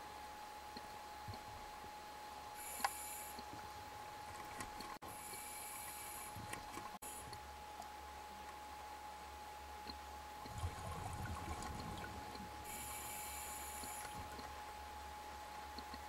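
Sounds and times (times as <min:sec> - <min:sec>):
faint steady hum: 0:00.0 - 0:16.0
underwater bubbles gurgling: 0:10.4 - 0:12.5.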